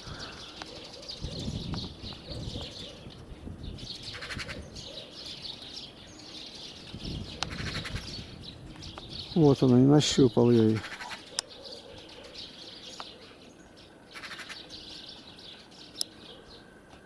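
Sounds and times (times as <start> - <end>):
small birds chirping: 0.0 - 17.0
wind rumble: 1.2 - 5.0, 6.7 - 9.4.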